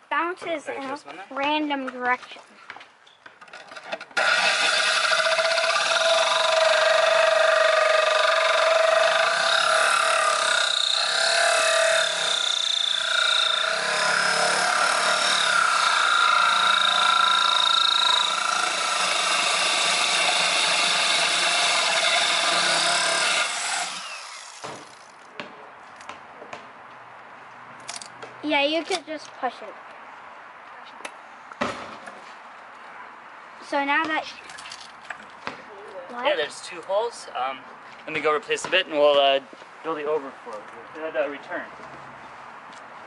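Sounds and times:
electric drill grinding glass: 4.2 - 25.1.

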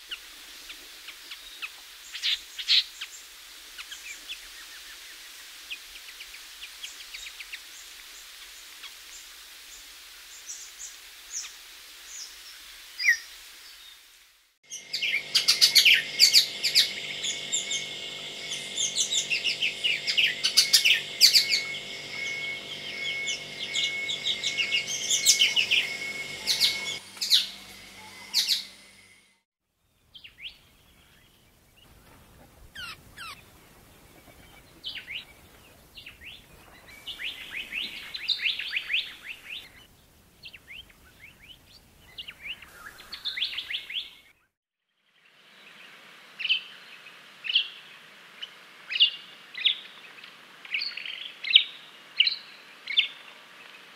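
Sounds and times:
bird chirping and whistling: 14.7 - 29.0
low steady hum: 14.7 - 29.4
faint bird chirps and trills: 14.7 - 44.5.

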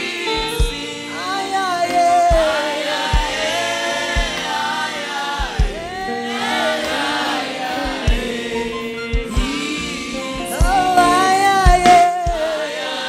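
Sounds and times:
choir singing gospel: 0.0 - 13.0
low drum thumps: 0.4 - 0.8, 3.2 - 4.5, 5.4 - 6.2, 7.8 - 8.5, 9.2 - 9.7, 10.4 - 11.1, 11.7 - 12.6.

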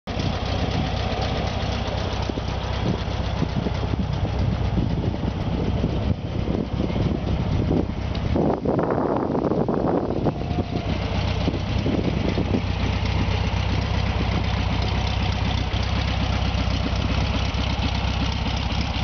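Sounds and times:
car engine idling: 0.1 - 19.0.

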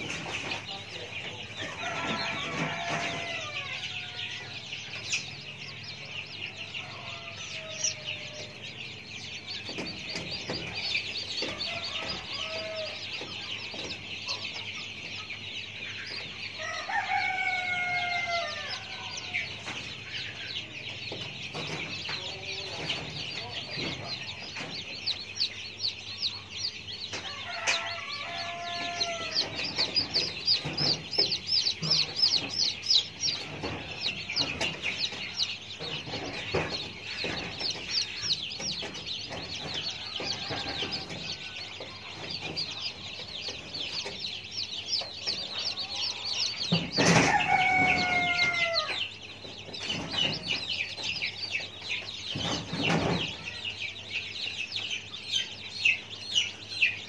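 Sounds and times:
chickens chirping: 0.0 - 57.0
knocks: 29.3 - 42.7.

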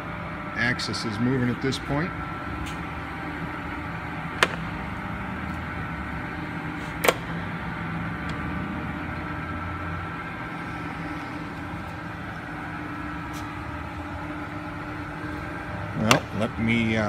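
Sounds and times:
lathe running: 0.0 - 17.0.

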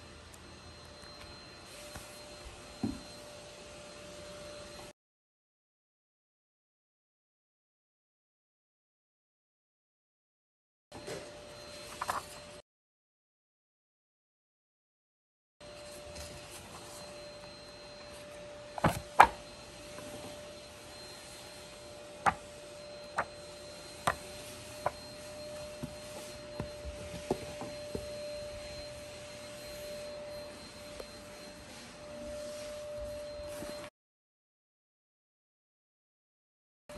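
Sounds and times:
faint steady tone: 0.0 - 4.9, 15.6 - 33.9
book pages turning: 11.9 - 12.4.

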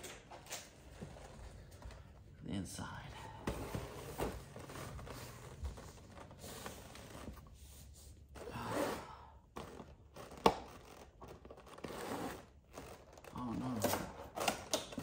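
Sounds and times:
plastic packaging rustling: 3.8 - 7.6.

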